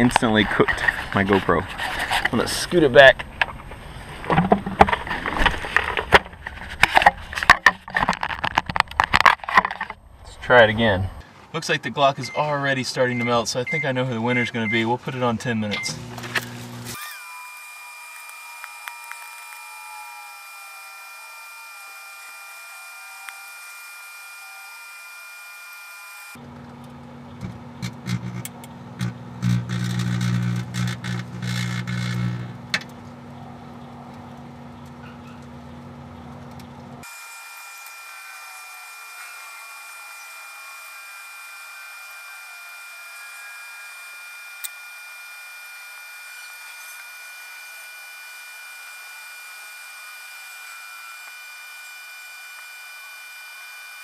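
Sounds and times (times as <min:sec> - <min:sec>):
microwave oven hum: 0:15.6 - 0:17.0, 0:26.4 - 0:37.0
electrical crackles and pops: 0:26.4 - 0:33.1.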